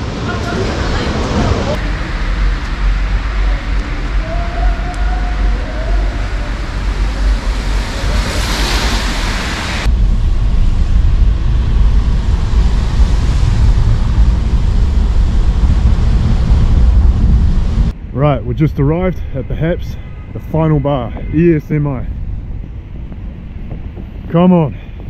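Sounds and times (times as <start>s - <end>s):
hissing wet street noise: 0.0s - 18.0s
wind buffeting microphone: 0.0s - 25.0s.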